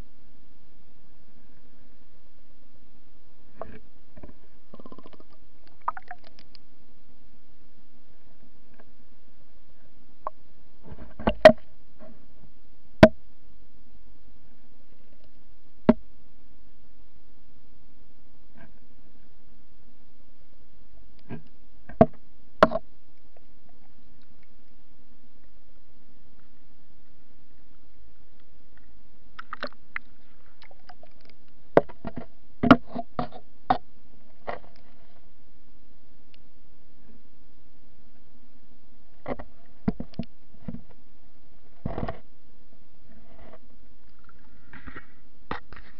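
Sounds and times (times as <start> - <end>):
underwater low hum: 0.0 - 45.9
sharp underwater clicks and knocks: 3.6 - 6.6, 10.2 - 11.7, 28.8 - 34.9, 39.2 - 41.0.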